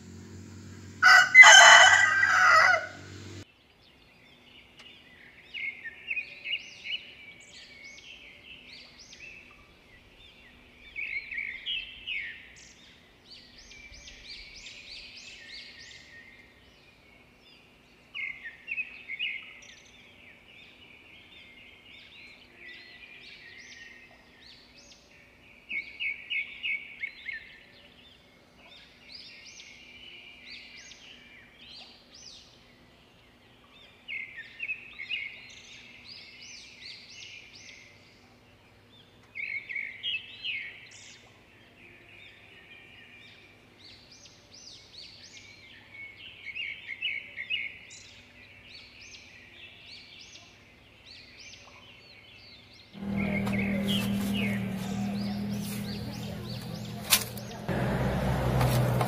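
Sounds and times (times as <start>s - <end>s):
rooster crowing: 0.0s - 3.4s
small birds chirping: 0.0s - 59.0s.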